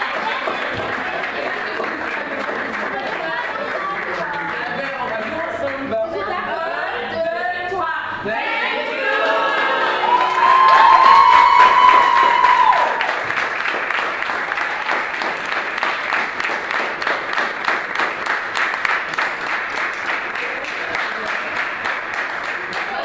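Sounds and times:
people applauding: 0:00.0 - 0:06.0, 0:09.3 - 0:23.0
person cheering: 0:09.9 - 0:13.1.

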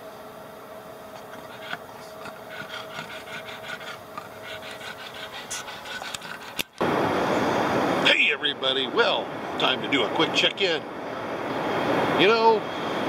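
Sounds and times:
faint steady hum: 0:00.0 - 0:09.9
dog breathing rapidly and raspily: 0:01.1 - 0:06.8.

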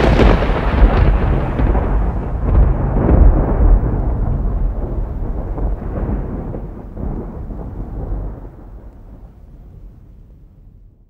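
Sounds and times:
deep rumbling: 0:00.0 - 0:11.0.

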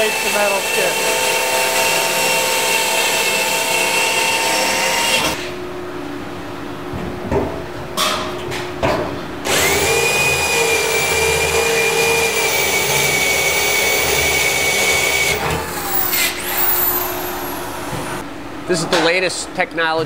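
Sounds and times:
drill motor winding down: 0:00.0 - 0:05.4, 0:09.5 - 0:18.2
electric drill cutting metal: 0:00.0 - 0:05.5, 0:09.5 - 0:18.1.

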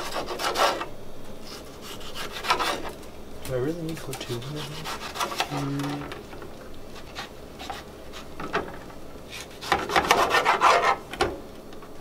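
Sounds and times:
knife scraping cutting board: 0:00.0 - 0:03.0, 0:04.1 - 0:06.0, 0:07.0 - 0:08.4, 0:09.3 - 0:11.0
knife slicing tomatoes: 0:00.0 - 0:03.0, 0:04.0 - 0:05.8, 0:09.3 - 0:11.0.

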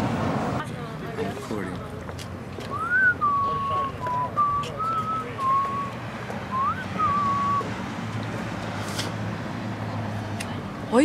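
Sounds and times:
person whistling a tune: 0:02.7 - 0:07.7.

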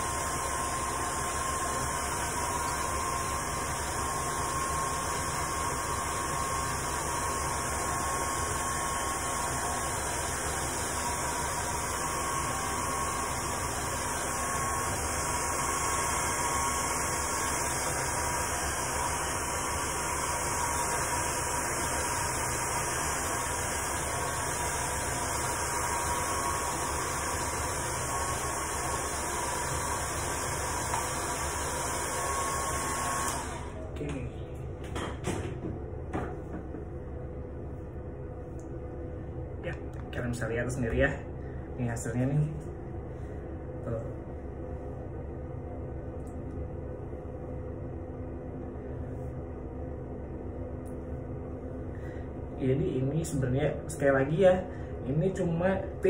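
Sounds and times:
hair dryer blowing air: 0:00.0 - 0:33.9.

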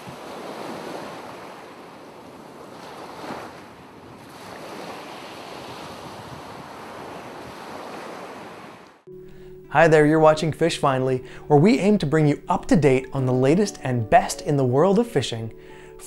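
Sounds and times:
ocean waves washing: 0:00.0 - 0:16.0.

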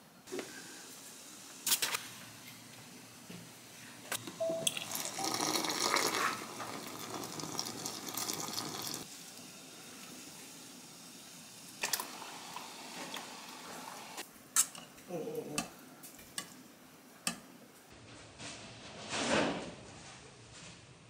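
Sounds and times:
water running from tap: 0:04.7 - 0:09.1, 0:11.8 - 0:14.2.

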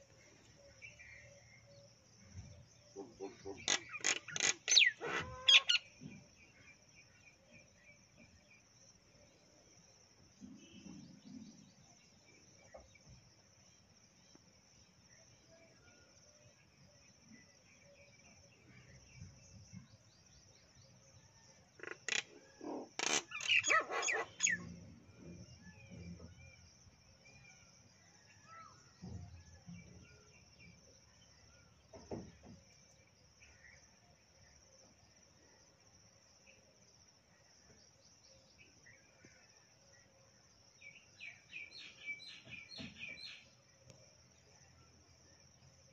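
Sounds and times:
birds calling: 0:02.9 - 0:06.2, 0:21.8 - 0:24.9.

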